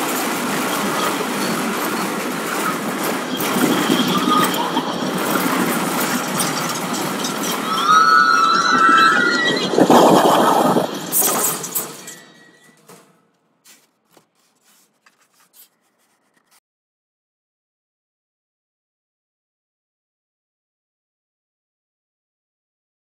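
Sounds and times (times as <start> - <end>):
city street ambience: 0.0 - 16.6
wavering high squeal: 0.3 - 12.8.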